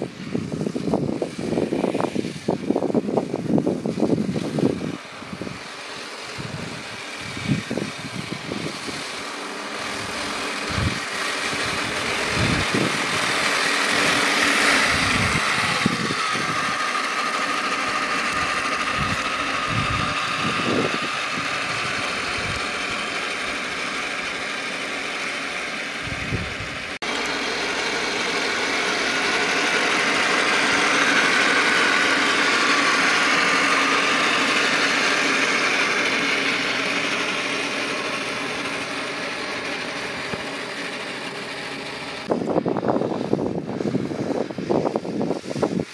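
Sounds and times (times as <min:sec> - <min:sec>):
wind thumping microphone: 0:00.0 - 0:05.7, 0:06.3 - 0:09.0, 0:09.9 - 0:16.9, 0:18.1 - 0:23.0, 0:26.0 - 0:27.0, 0:42.2 - 0:45.9
toy tank motor whine: 0:00.0 - 0:45.9.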